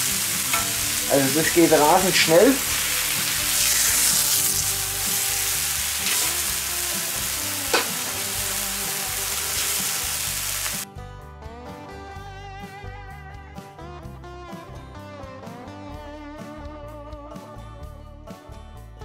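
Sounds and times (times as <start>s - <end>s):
beef sizzling on hot plate: 0.0s - 10.8s
guitar music: 0.0s - 19.0s.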